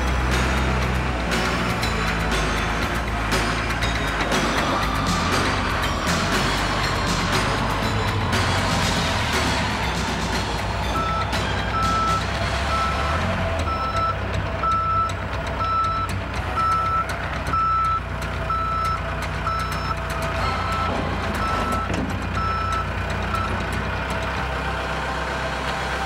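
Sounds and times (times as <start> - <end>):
diesel engine running: 0.0 - 26.0
backup alarm beeping: 10.9 - 23.7.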